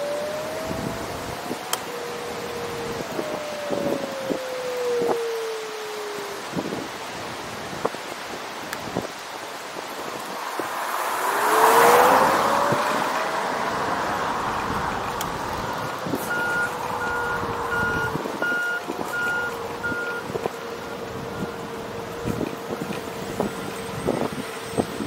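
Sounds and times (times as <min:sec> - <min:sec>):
vehicle passing with whine: 0:00.0 - 0:07.5, 0:09.1 - 0:25.0
electronic beeps: 0:16.2 - 0:20.3.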